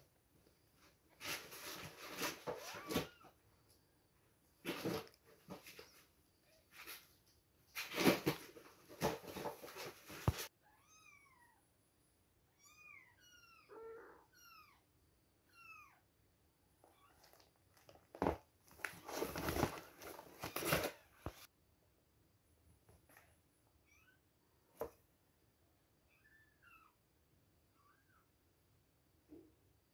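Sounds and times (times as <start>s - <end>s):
rustling and handling noise: 0.6s - 3.3s, 4.5s - 10.5s, 16.8s - 21.5s.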